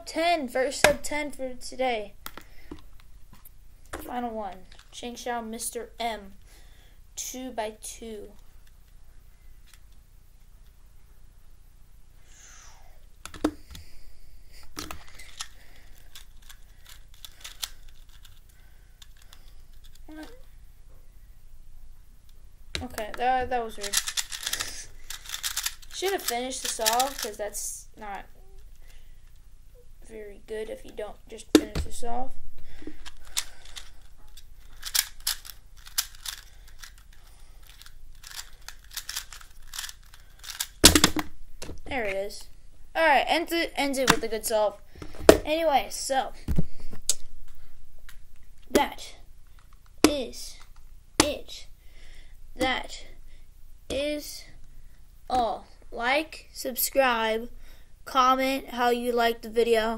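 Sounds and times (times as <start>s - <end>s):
puzzle cube plastic clicks: 14.8s - 20.4s, 22.8s - 27.4s, 33.0s - 41.3s.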